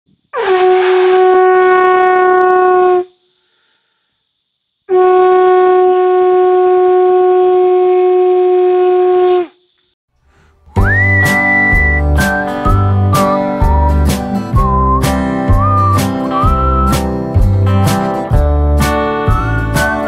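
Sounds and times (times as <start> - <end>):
horn blasts: 4.9 - 9.2.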